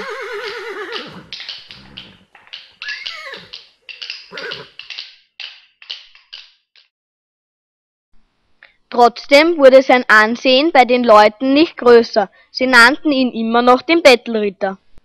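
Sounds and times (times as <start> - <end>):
horse whinnying: 0.0 - 3.7, 4.3 - 4.8
horse snorting and snuffling: 0.0 - 4.8.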